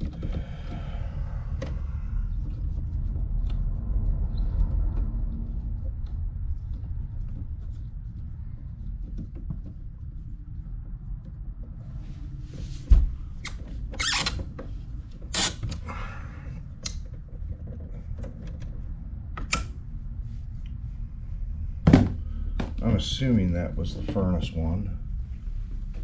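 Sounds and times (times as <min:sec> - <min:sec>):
low rumble: 0:00.0 - 0:14.0, 0:14.6 - 0:26.0.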